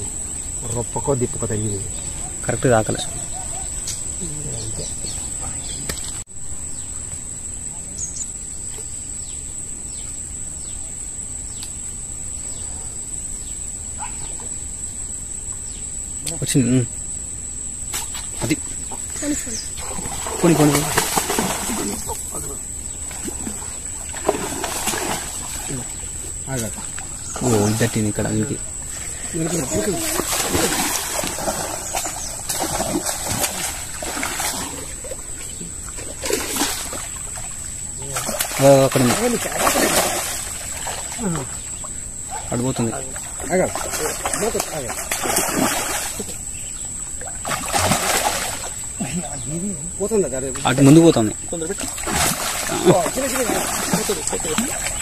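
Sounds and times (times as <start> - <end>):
high-pitched insect drone: 0.0 - 55.0
bird chirping: 1.5 - 7.0
water splashing from thrashing fish: 19.8 - 22.4, 23.1 - 26.0, 29.5 - 41.6, 43.0 - 46.4, 47.2 - 48.9, 51.6 - 55.0.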